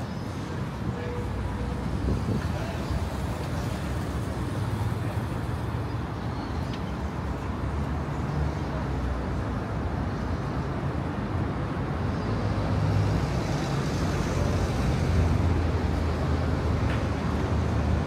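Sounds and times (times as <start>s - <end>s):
street traffic passing: 0.0s - 18.0s.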